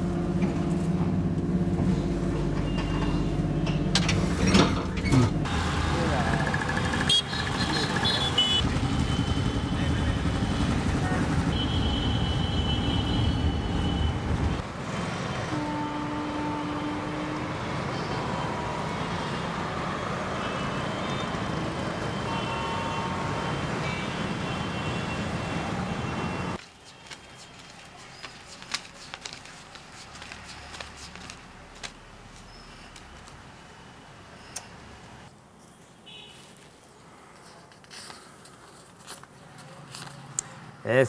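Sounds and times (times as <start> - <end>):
busy street traffic: 0.0 - 41.0
motorcycle engine running: 5.6 - 11.8
vehicle horn toots: 7.0 - 14.2, 15.5 - 17.6, 22.1 - 26.6
banknotes rustling and clicking: 26.6 - 33.5.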